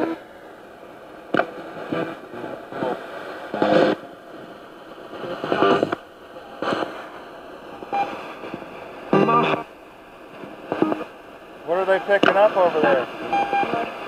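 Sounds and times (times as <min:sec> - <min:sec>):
radio static hiss: 0:00.0 - 0:14.0
snatches of broadcast voice: 0:10.7 - 0:14.0.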